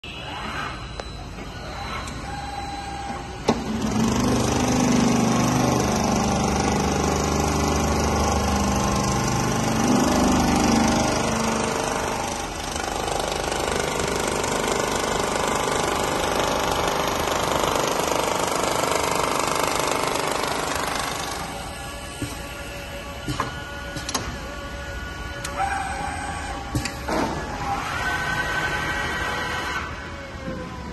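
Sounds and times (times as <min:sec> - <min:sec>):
low motor hum: 0:00.8 - 0:27.8
sewing machine mechanical clatter: 0:03.6 - 0:22.6.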